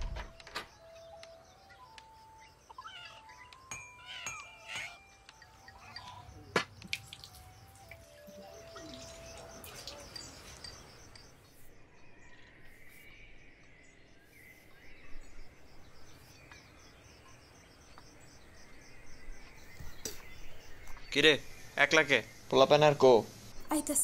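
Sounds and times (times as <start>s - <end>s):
insects chirping: 0.0s - 24.0s
faint bird calls: 0.6s - 11.5s.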